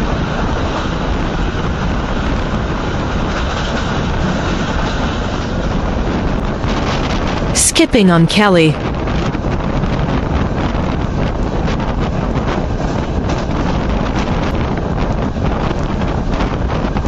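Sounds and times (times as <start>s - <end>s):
train wheels rumbling on rails: 0.0s - 7.5s, 9.0s - 17.0s
wind rushing over microphone: 8.8s - 17.0s.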